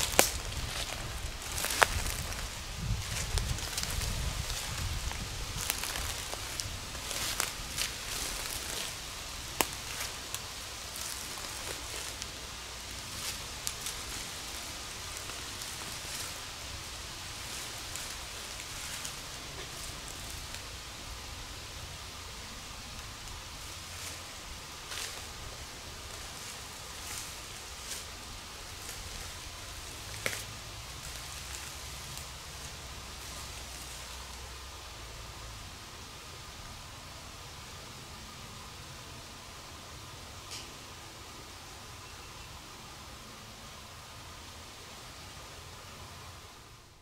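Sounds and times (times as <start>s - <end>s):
light ticks and rustles: 0.0s - 20.9s, 22.8s - 34.5s
footsteps through dry leaves: 0.0s - 34.9s
faint steady hiss: 0.0s - 47.0s.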